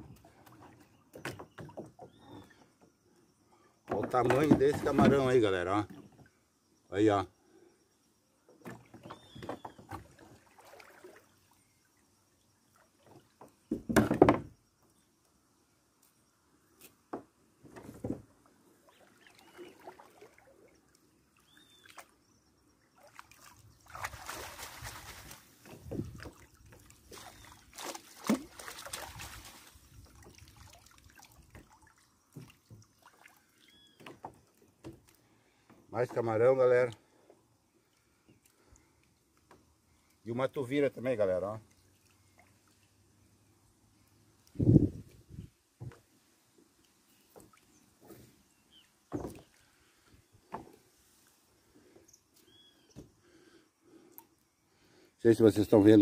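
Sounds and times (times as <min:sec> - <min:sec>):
river water sloshing and trickling: 0:00.0 - 0:06.7, 0:08.4 - 0:14.8, 0:17.7 - 0:54.6
water running through net mesh: 0:10.1 - 0:11.6, 0:18.8 - 0:22.0, 0:23.0 - 0:33.7.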